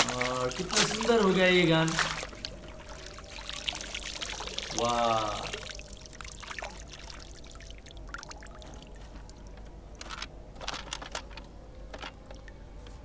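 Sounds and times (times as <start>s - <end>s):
short water splashes: 0.0s - 9.4s
water pouring and dripping: 0.0s - 13.0s.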